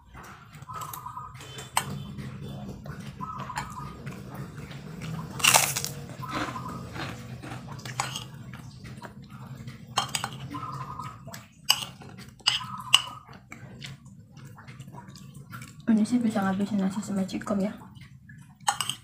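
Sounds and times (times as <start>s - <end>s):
chewing crunchy food: 0.0s - 15.9s, 18.0s - 19.0s
low steady hum: 0.0s - 19.0s
spoon scraping ceramic plate: 7.9s - 8.3s, 10.0s - 10.4s.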